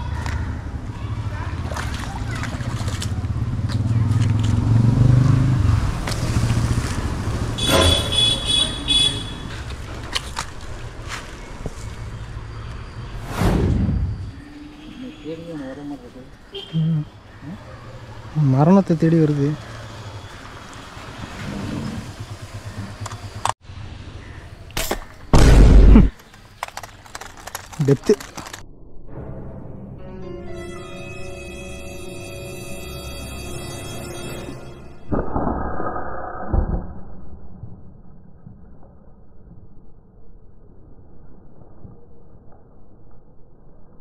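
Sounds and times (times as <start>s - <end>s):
vehicle engine passing by: 1.1s - 8.2s, 19.6s - 23.5s
loud boom: 13.2s - 14.3s, 25.4s - 26.1s.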